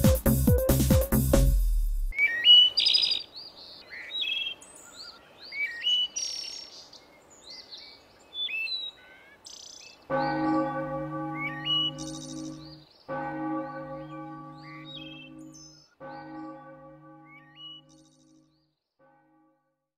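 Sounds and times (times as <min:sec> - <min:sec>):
birds chirping: 0:02.1 - 0:18.6
bell ringing: 0:10.1 - 0:18.4.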